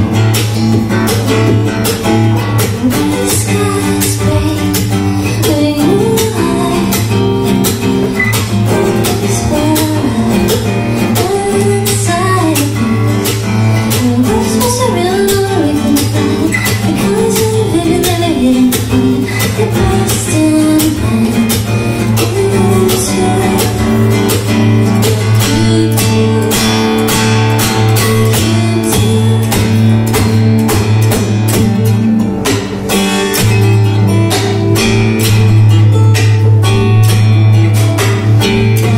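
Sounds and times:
acoustic guitar strumming: 0:00.0 - 0:38.9
person singing: 0:02.4 - 0:07.4, 0:08.2 - 0:30.4.

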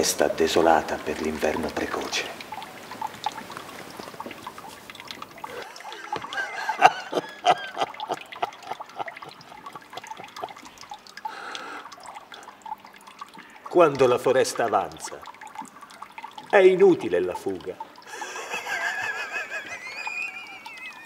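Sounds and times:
water dripping and trickling: 0:00.0 - 0:21.0.

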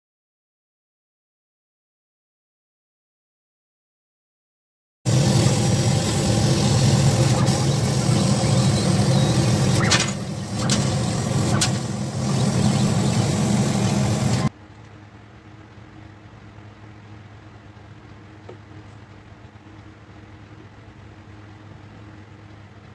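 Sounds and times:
laser cutter humming with hiss: 0:05.1 - 0:14.5.

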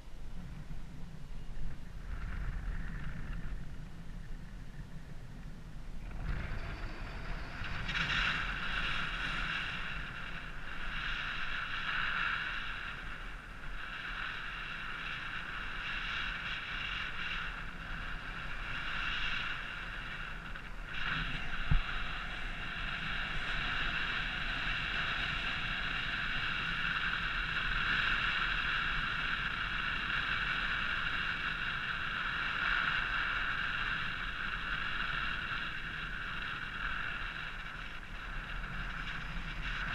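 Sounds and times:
wind rushing over camera: 0:00.0 - 0:39.9
high-pitched whistling tone: 0:06.2 - 0:08.7.

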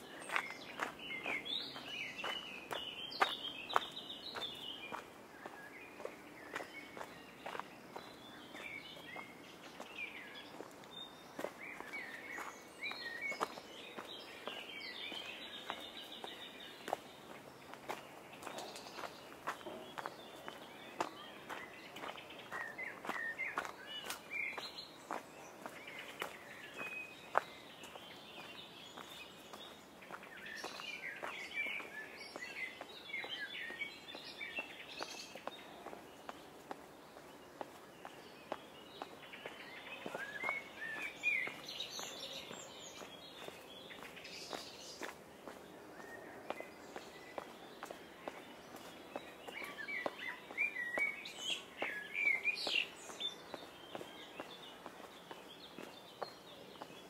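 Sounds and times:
songbirds chirping: 0:00.0 - 0:57.0
walking footsteps: 0:00.2 - 0:57.0
footsteps: 0:10.5 - 0:24.3.

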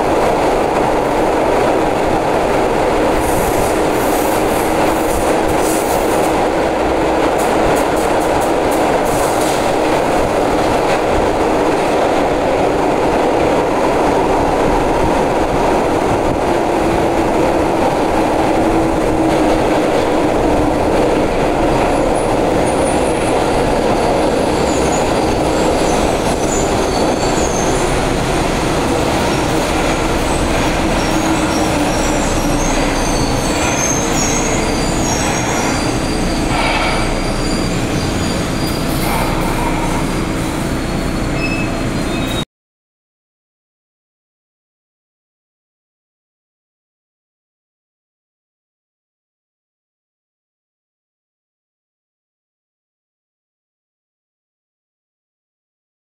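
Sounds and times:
train wheels rumbling on rail: 0:00.0 - 0:42.4
high-pitched wheel squeals: 0:23.9 - 0:28.0, 0:30.3 - 0:42.4.

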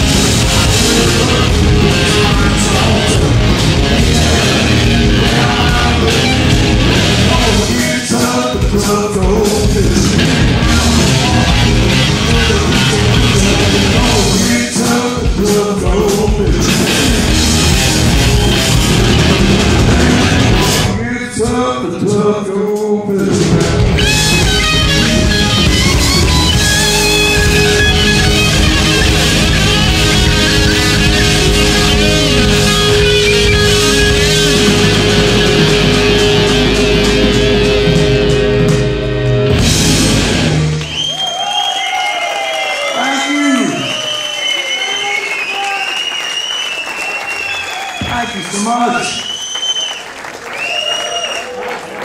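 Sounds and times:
electric guitar lead: 0:00.0 - 0:07.8, 0:09.6 - 0:14.5, 0:16.4 - 0:21.0, 0:23.3 - 0:40.9
rock band playing loud: 0:00.0 - 0:49.4.

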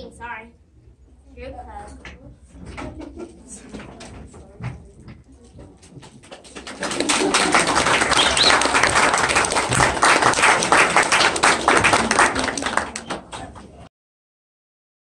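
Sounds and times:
small audience clapping: 0:02.8 - 0:13.9.

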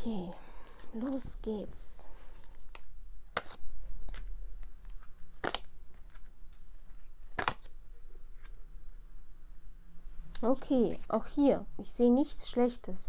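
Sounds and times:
cards rustling: 0:00.2 - 0:08.6.

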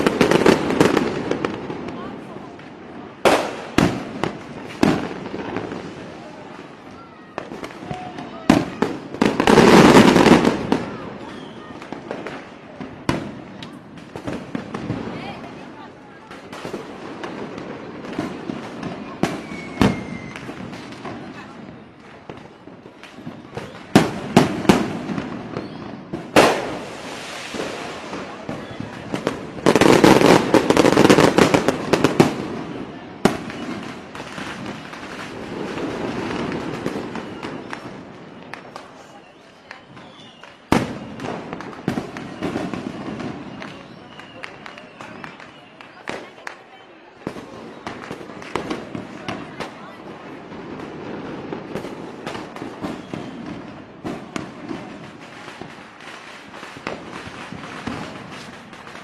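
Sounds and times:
fireworks crackling bangs: 0:00.0 - 0:59.0
firework sharp bang: 0:03.2 - 0:05.9, 0:23.1 - 0:38.9.

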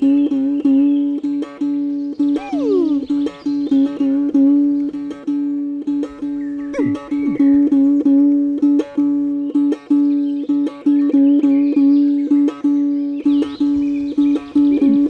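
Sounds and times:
plucked one-stringed lute: 0:00.0 - 0:15.0
sliding falling tone: 0:02.4 - 0:03.3.

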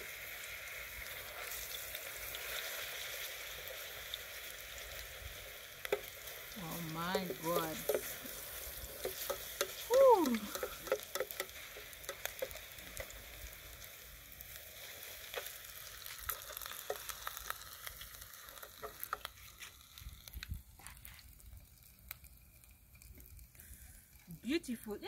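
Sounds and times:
food deep-frying in oil: 0:00.0 - 0:25.0
fork clicking against pot: 0:09.0 - 0:12.6.

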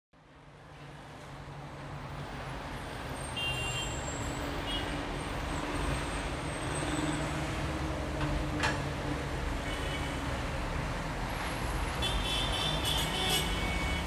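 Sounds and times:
traffic rumble: 0:00.3 - 0:14.0.

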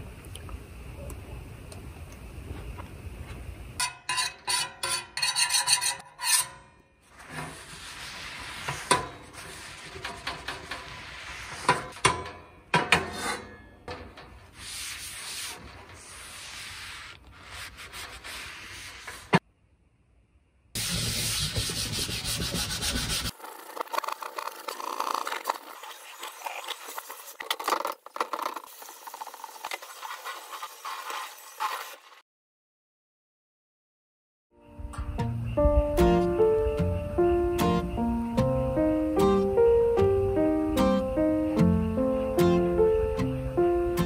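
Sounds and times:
sponge scrubbing steel plate: 0:04.1 - 0:12.0, 0:14.4 - 0:19.4, 0:20.8 - 0:32.2
paper towel wiping metal griddle: 0:07.1 - 0:12.0, 0:14.2 - 0:19.4, 0:20.8 - 0:27.4, 0:28.2 - 0:32.2.

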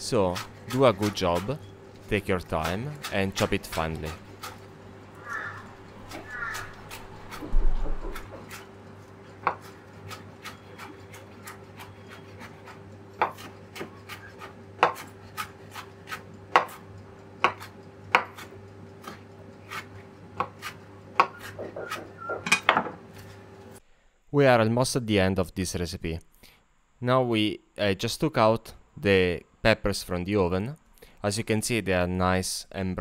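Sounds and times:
knife chopping on wooden board: 0:06.1 - 0:08.7, 0:09.3 - 0:16.8, 0:17.4 - 0:23.0.

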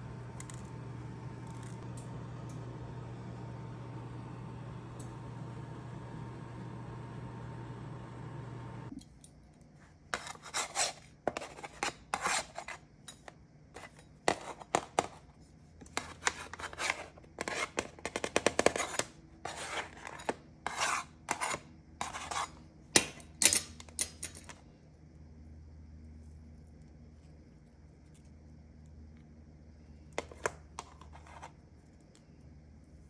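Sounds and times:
spatula scraping metal baking sheet: 0:10.2 - 0:12.8, 0:16.0 - 0:22.6.

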